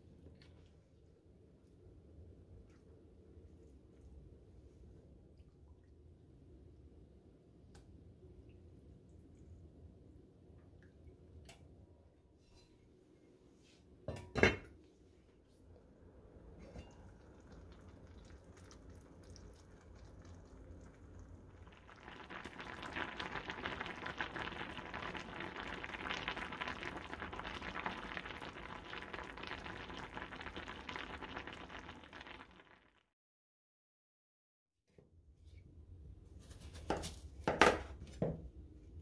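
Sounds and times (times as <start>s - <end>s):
food bubbling in a pot: 15.8s - 33.1s.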